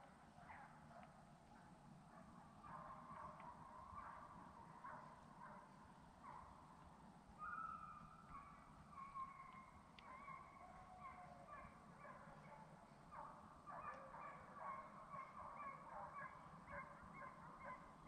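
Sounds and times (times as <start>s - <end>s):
hounds baying: 7.4s - 18.0s.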